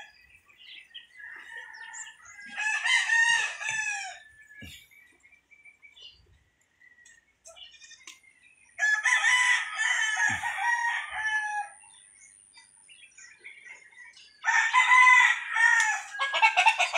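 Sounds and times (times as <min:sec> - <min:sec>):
rooster crowing: 0:01.2 - 0:04.3, 0:08.8 - 0:11.8, 0:14.4 - 0:16.9.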